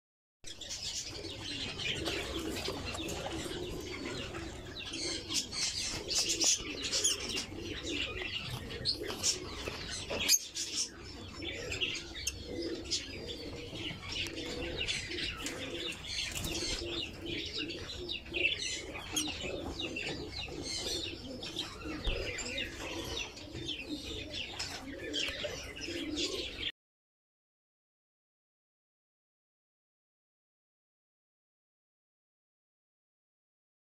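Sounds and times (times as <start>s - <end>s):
lovebirds chirping and chattering: 0.5s - 26.7s.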